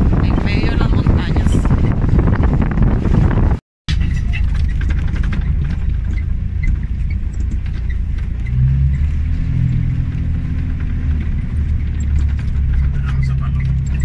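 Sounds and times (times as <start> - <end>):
car engine and road rumble: 0.0 - 14.0
rattles and knocks: 3.9 - 14.0.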